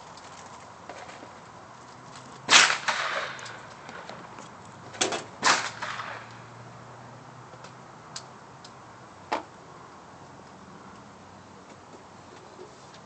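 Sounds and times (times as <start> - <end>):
gunshots with echo: 2.5 - 3.4.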